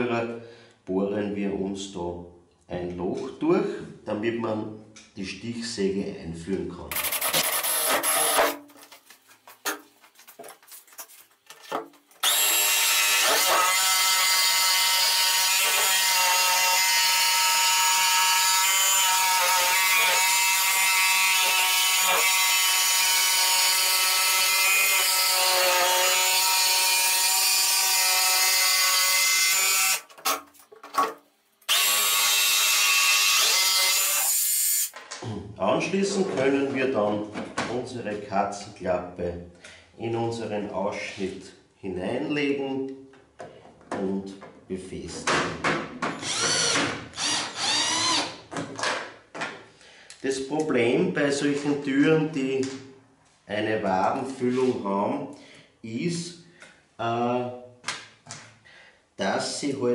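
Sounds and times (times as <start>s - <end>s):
cordless drill boring: 6.9s - 8.6s, 12.2s - 30.4s, 31.7s - 34.9s, 46.2s - 48.4s
jigsaw cutting: 6.9s - 8.6s, 12.2s - 31.1s, 31.7s - 34.9s, 46.2s - 48.4s.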